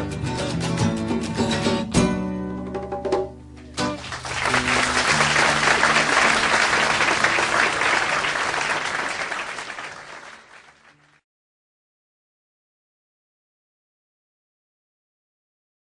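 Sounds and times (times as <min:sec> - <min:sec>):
audience applause: 0:03.8 - 0:11.2.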